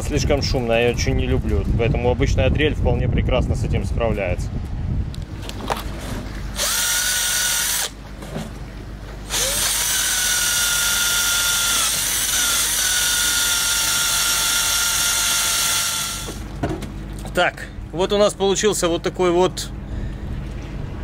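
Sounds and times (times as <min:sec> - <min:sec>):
drill with wire brush on metal: 0:06.6 - 0:08.0, 0:09.3 - 0:16.4.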